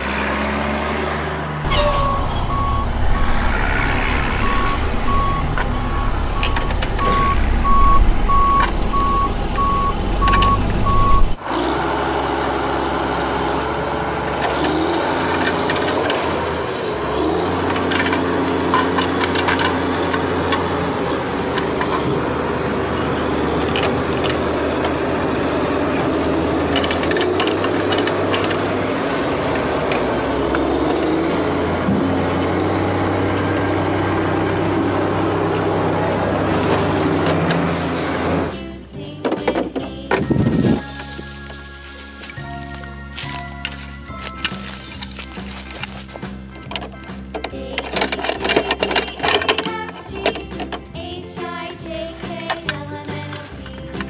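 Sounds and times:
diesel truck engine running: 0.0s - 54.0s
reversing beeper: 1.6s - 11.4s.

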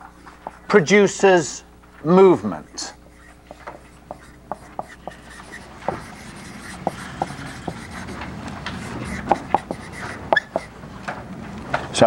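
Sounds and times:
marker pen writing on whiteboard: 0.0s - 0.8s, 2.5s - 10.7s.

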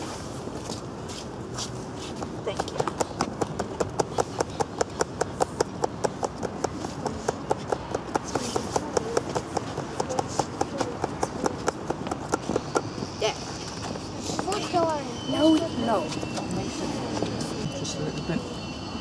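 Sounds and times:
fast sharp tapping: 2.7s - 13.0s.

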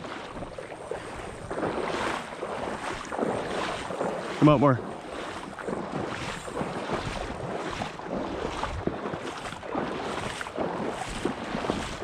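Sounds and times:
shallow water sloshing: 0.0s - 12.0s
wind buffeting microphone: 0.0s - 12.0s.

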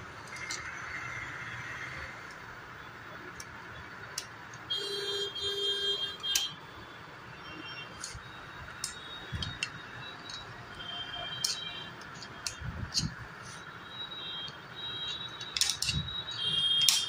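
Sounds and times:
small metal clicks and taps: 8.8s - 10.5s, 11.3s - 13.1s, 14.4s - 17.0s.

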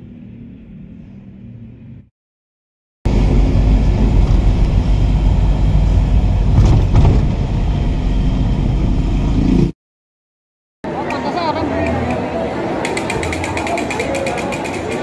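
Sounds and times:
highway road noise rumble: 3.1s - 9.7s.

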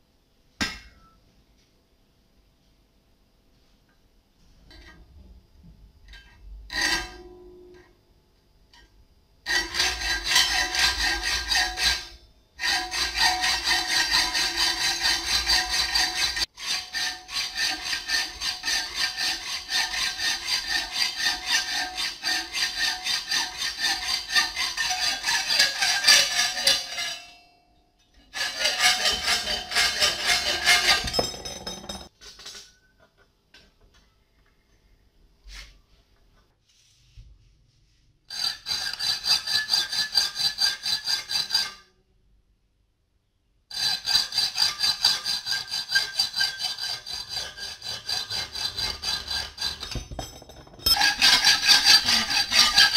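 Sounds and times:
hacksaw cutting steel bar: 9.5s - 27.3s, 28.3s - 31.7s, 38.3s - 41.8s, 43.7s - 52.9s.

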